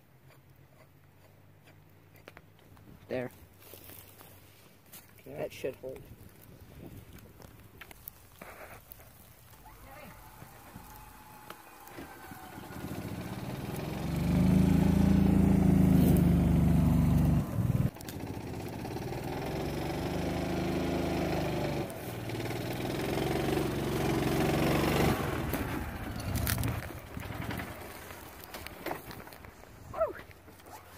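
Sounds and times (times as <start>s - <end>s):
small engine running under load: 10.3s - 29.0s.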